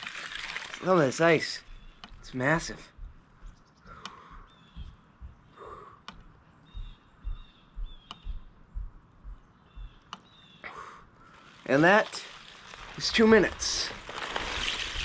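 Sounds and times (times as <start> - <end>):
bird calling: 0.8 - 14.2
sharp clicks: 1.9 - 2.2, 3.9 - 5.0, 6.0 - 6.4, 8.0 - 8.4, 9.8 - 10.3.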